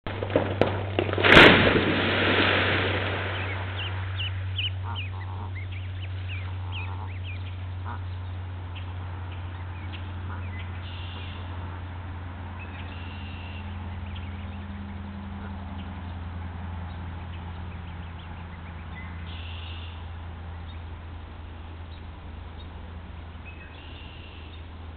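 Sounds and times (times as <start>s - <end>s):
low hum: 0.1s - 24.9s
goslings peeping: 3.1s - 21.0s
geese calling: 3.2s - 20.9s.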